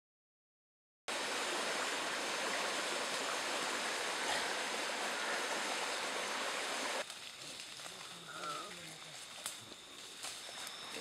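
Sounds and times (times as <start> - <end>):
stream flowing over stones: 1.1 - 7.1.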